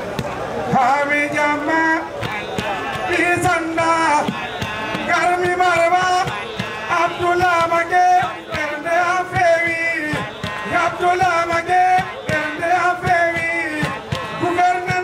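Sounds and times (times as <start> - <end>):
drum beats: 0.0 - 15.0
man singing into microphone: 0.7 - 15.0.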